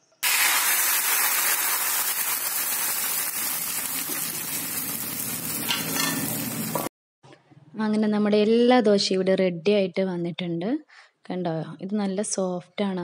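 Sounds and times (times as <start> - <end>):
batter sizzling on a hot griddle: 0.2 - 6.9.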